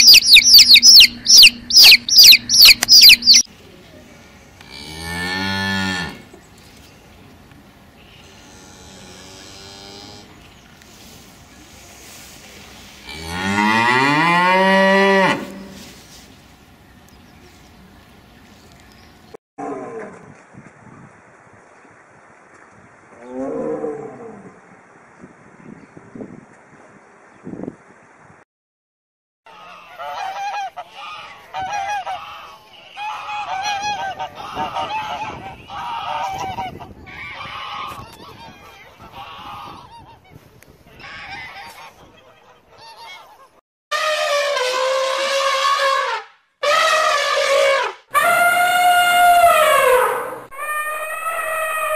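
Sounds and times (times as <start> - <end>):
geese honking: 0.0 - 3.5, 29.5 - 40.4, 41.0 - 51.9
cow mooing: 4.6 - 6.3, 8.2 - 10.4, 13.0 - 15.8.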